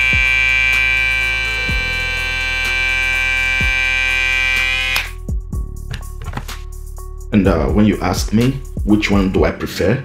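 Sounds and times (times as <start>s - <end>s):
hair trimmer whining: 0.0s - 5.2s.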